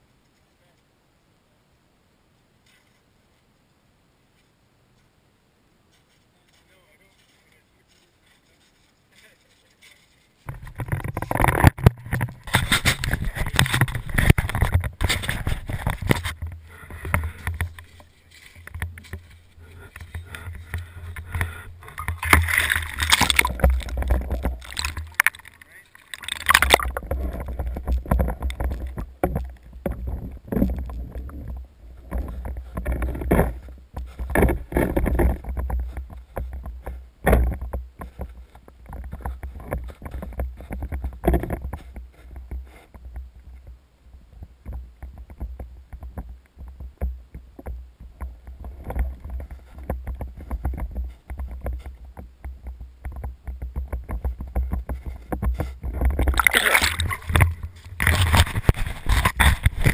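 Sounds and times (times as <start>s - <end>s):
water sloshing: 10.5s - 36.1s, 55.8s - 59.9s
muffled underwater rumble: 10.5s - 36.9s.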